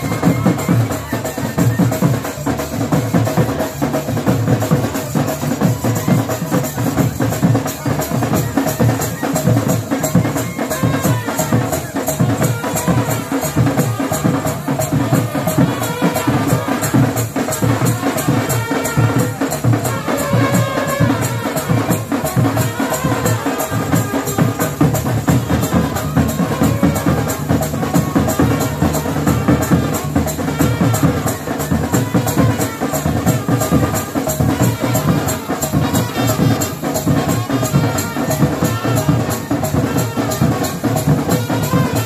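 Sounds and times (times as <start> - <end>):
band playing dance music: 0.0 - 42.0
loud drums beating: 0.0 - 42.0.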